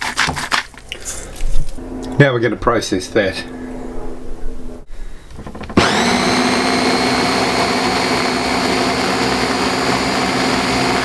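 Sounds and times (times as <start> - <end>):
food processor motor running: 5.3 - 11.0.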